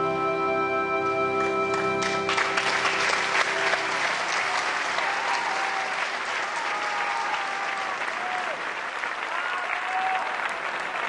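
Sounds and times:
sustained musical chord: 0.0s - 5.3s
audience applause: 1.7s - 11.0s.

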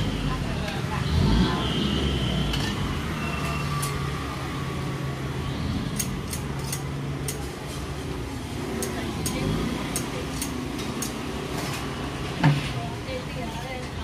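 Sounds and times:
sharp clicks and clinks: 5.9s - 7.5s.

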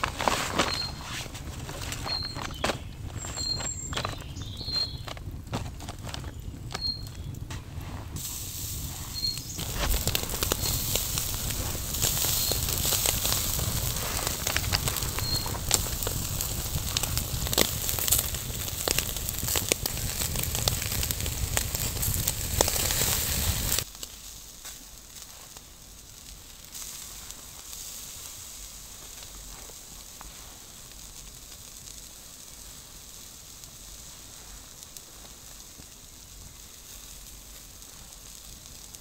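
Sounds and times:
steady hiss: 0.0s - 39.0s
wood fire crackling and popping: 0.0s - 39.0s.

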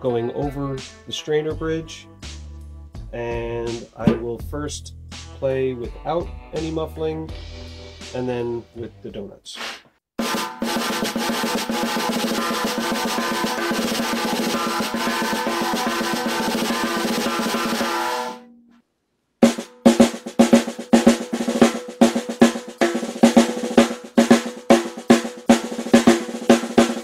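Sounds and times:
snare drum roll: 3.7s - 4.4s, 9.6s - 18.4s, 19.4s - 27.0s
single snare stick strokes: 9.6s - 9.9s.

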